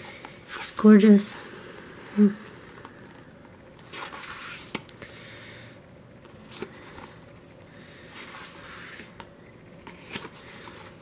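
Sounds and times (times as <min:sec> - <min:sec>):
paper pages turning: 0:03.8 - 0:04.9, 0:08.2 - 0:11.0.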